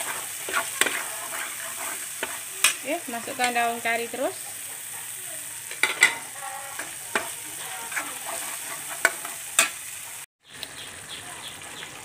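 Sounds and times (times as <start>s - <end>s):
metal spatula scraping pan: 0.0s - 4.3s, 5.6s - 10.2s
spices sizzling in hot oil: 0.0s - 12.0s.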